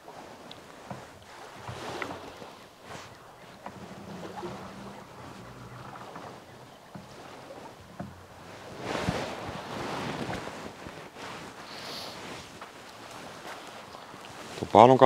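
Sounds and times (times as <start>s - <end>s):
small waves: 0.0s - 15.0s
wind: 0.0s - 15.0s
distant engine hum: 1.7s - 9.4s.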